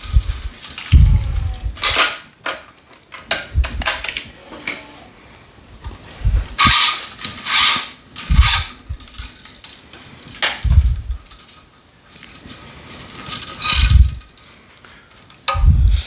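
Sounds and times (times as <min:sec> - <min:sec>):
string swishing through racket: 0:06.0 - 0:09.0, 0:10.6 - 0:11.2.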